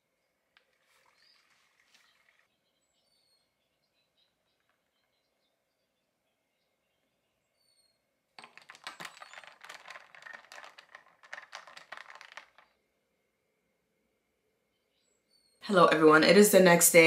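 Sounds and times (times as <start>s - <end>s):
ice cubes clinking against glass: 8.4s - 12.6s.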